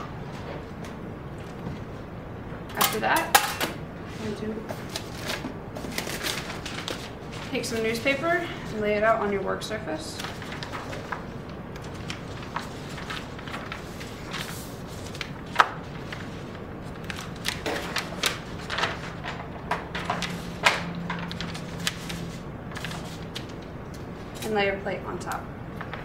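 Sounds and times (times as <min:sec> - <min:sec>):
newspaper crackles: 0:04.2 - 0:08.7, 0:09.6 - 0:24.5, 0:25.7 - 0:26.0
newspaper rustling: 0:04.2 - 0:24.5.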